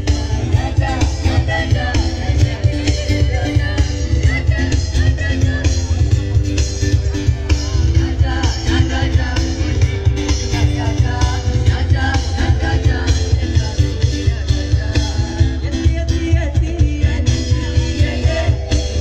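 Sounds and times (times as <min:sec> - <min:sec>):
acoustic guitar: 0:00.0 - 0:19.0
keyboard: 0:00.0 - 0:19.0
steady beat with heavy bass: 0:00.0 - 0:19.0
women singing into microphones: 0:00.0 - 0:19.0.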